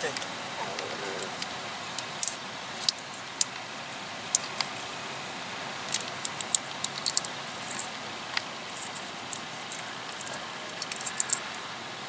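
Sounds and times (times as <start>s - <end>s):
outdoor background hiss: 0.0s - 12.0s
sharp high-pitched ticks: 5.9s - 11.6s.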